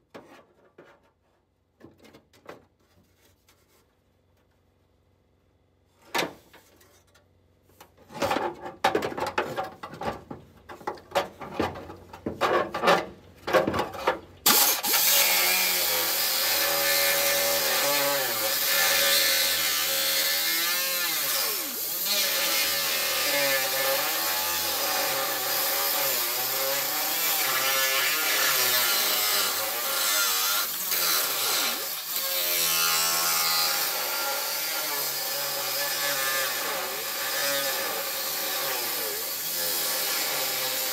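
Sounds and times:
cut-off wheel grinder cutting steel: 14.4 - 40.9.

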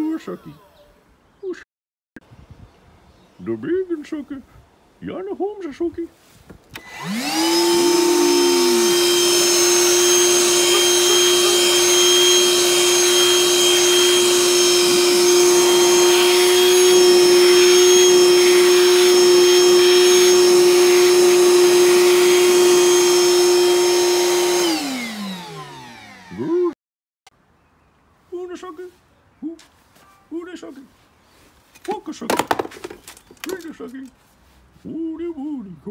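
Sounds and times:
vacuum motor whining: 6.8 - 26.7.

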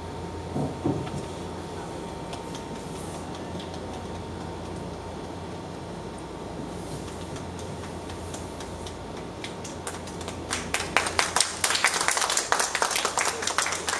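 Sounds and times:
room hum: 0.0 - 13.9
audience clapping: 2.2 - 5.4, 7.0 - 13.9.

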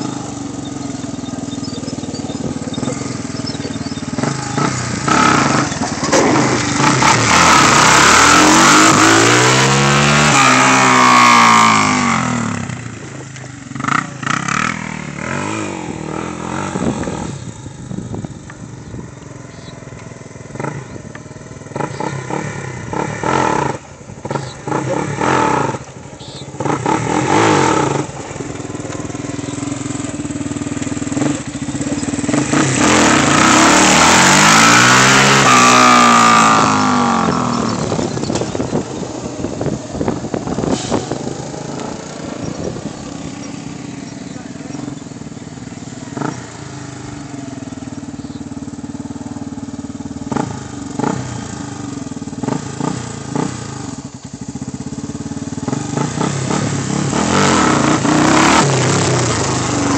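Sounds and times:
quad engine revving: 0.0 - 59.9
quad passing by: 0.0 - 59.9.

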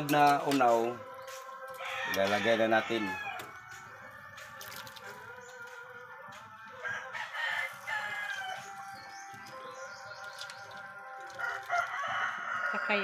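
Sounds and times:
rooster crowing: 1.8 - 3.5, 6.8 - 8.7, 11.4 - 13.0.

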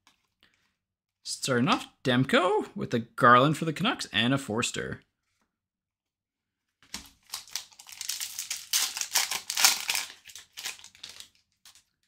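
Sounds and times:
foil card pack tearing and crinkling: 7.0 - 11.8.

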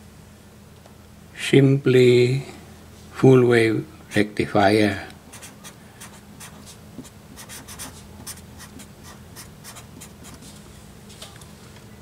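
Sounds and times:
marker writing on paper: 5.3 - 10.4.

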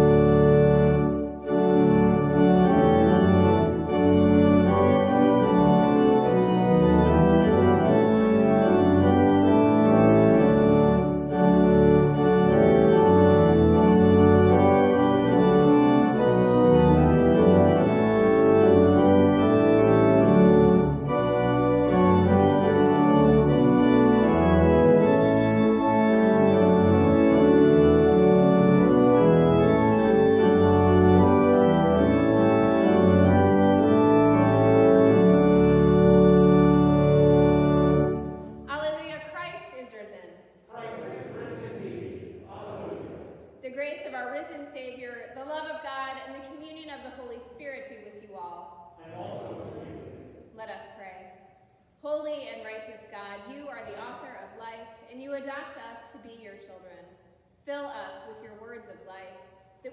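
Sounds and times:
organ playing chords: 0.0 - 38.7.

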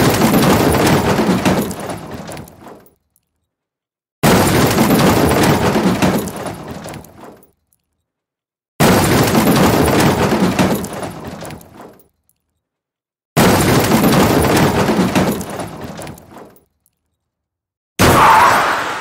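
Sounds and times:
car crash with breaking glass: 13.4 - 16.6.

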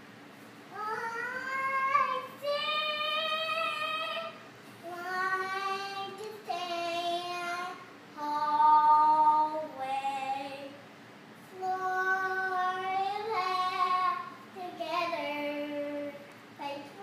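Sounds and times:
girl singing long notes: 0.7 - 10.8.

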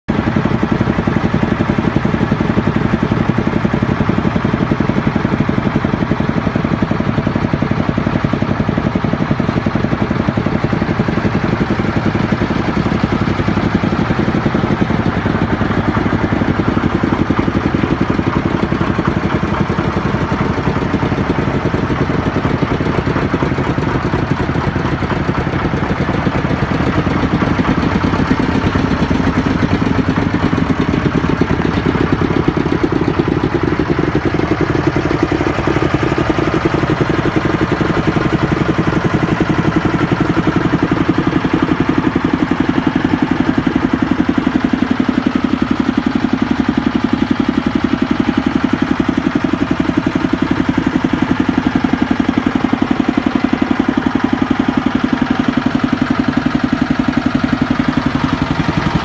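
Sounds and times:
roller engine idling: 0.0 - 59.0.

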